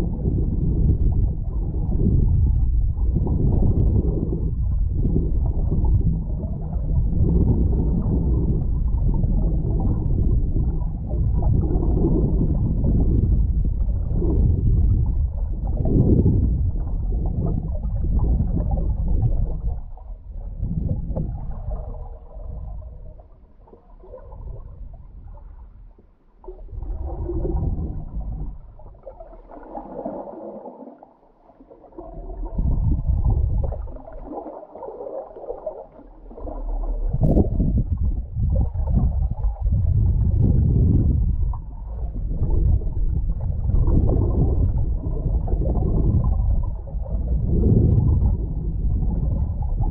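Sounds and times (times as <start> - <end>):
muffled underwater water rushing: 0.0 - 49.9.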